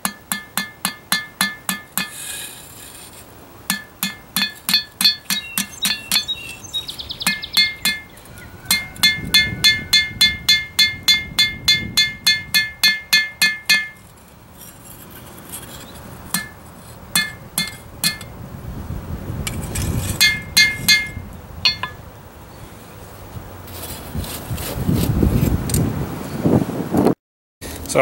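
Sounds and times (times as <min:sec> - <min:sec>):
hammer ringing on anvil: 0:00.0 - 0:02.2, 0:03.7 - 0:06.4, 0:07.2 - 0:14.0, 0:16.4 - 0:16.6, 0:17.2 - 0:18.3, 0:20.2 - 0:22.0.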